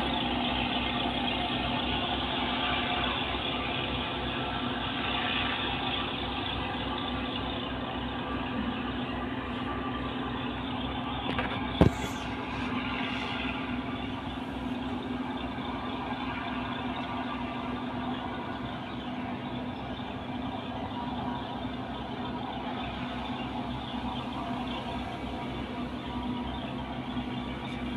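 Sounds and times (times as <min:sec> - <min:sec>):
ship engine humming: 0:00.0 - 0:27.9.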